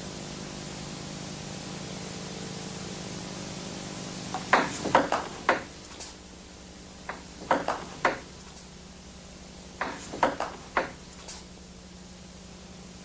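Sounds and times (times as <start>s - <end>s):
table tennis ball clicks: 4.3s - 6.2s, 7.1s - 8.7s, 9.8s - 11.5s.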